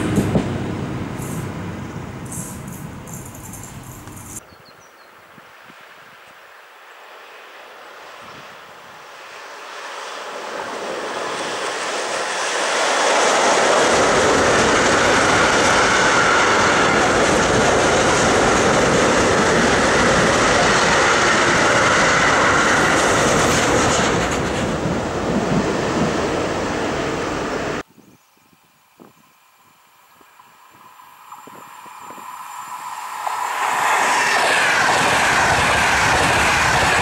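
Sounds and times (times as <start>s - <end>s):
freight train wheels rumbling: 0.0s - 4.4s, 9.2s - 27.8s, 30.8s - 37.0s.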